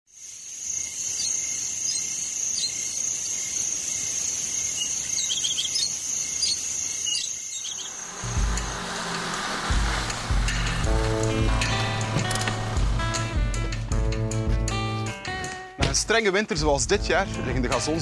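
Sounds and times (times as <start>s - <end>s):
cricket trill: 0.1s - 10.9s
bird chirps: 0.7s - 8.2s.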